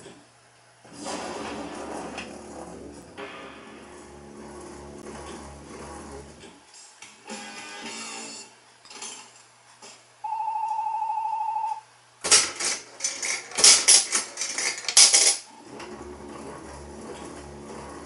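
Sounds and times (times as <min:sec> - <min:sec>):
coins clattering into tray: 0:12.3 - 0:15.5.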